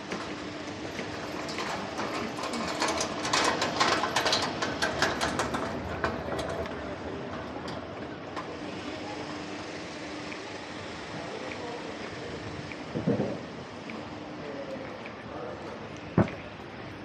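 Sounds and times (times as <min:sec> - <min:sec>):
hand truck clattering over cobblestones: 0:00.0 - 0:08.6.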